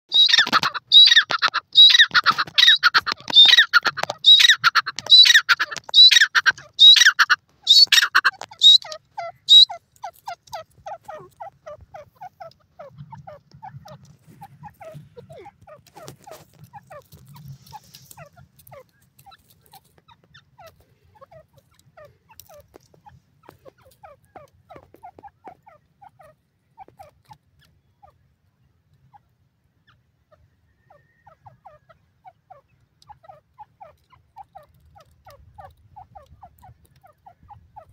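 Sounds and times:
francolin calling: 0:00.1 - 0:13.4.

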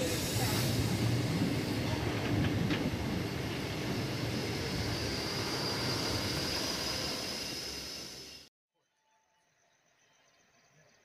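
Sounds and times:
train wheels rumbling on rails: 0:00.0 - 0:08.5.

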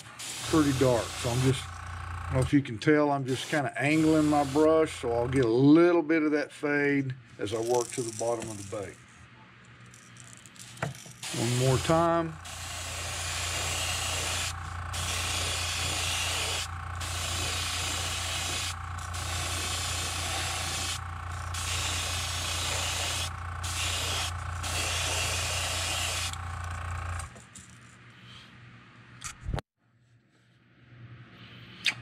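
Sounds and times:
airbrush hissing: 0:00.0 - 0:01.7, 0:03.3 - 0:05.0, 0:11.2 - 0:26.4
steady motor hum: 0:00.0 - 0:02.6, 0:03.3 - 0:05.6, 0:11.2 - 0:27.4.

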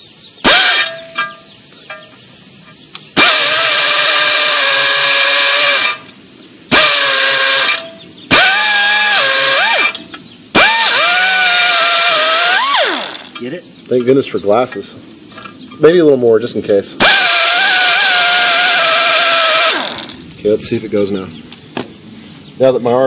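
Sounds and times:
rotary tool grinding metal: 0:00.5 - 0:01.4, 0:03.2 - 0:06.0, 0:06.7 - 0:13.5, 0:17.0 - 0:20.2.

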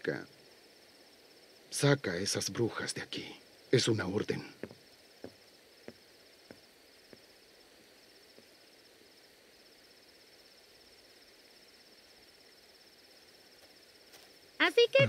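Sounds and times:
crickets chirping: 0:00.0 - 0:15.0
faint taps: 0:04.6 - 0:07.2.

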